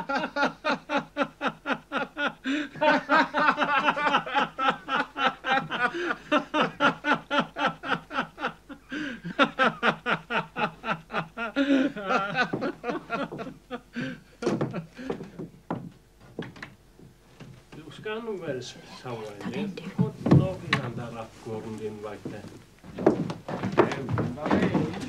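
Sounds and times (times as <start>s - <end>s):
man laughing loudly: 0.0s - 15.4s.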